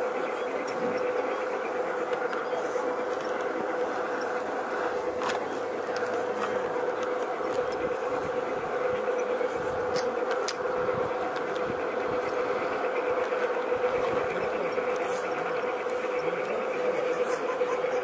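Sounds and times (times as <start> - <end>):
electric motor buzzing whine: 0.0 - 18.0
wheels rolling on rails: 0.0 - 18.0.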